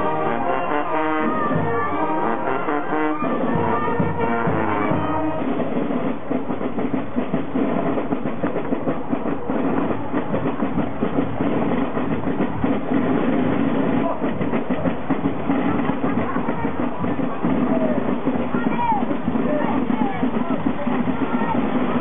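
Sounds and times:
brass band playing: 0:00.0 - 0:08.2
crowd noise: 0:00.0 - 0:22.0
rhythmic drumming: 0:00.0 - 0:22.0.

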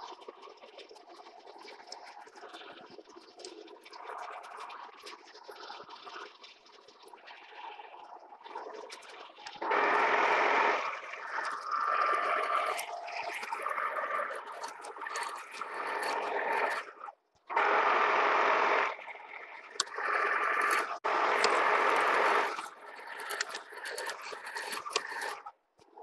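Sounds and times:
drill scraping into steel: 0:19.8 - 0:25.4.

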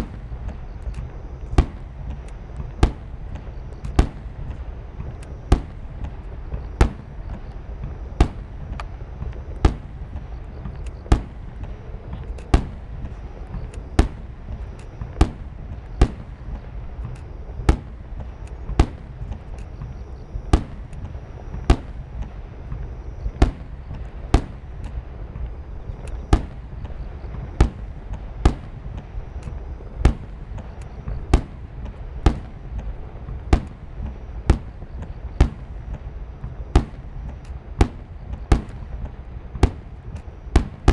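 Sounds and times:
continuous low rumble: 0:00.0 - 0:40.9
firework booms: 0:00.0 - 0:40.9.

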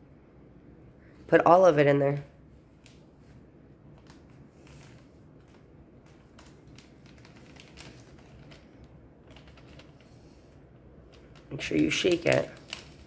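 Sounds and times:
paper packet crinkling: 0:03.9 - 0:10.2, 0:11.0 - 0:13.0.

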